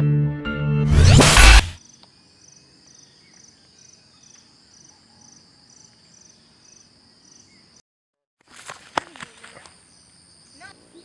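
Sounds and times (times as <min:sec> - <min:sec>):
crickets chirping: 0:01.8 - 0:07.8, 0:08.5 - 0:11.0
insect drone: 0:01.8 - 0:07.8, 0:08.8 - 0:11.0.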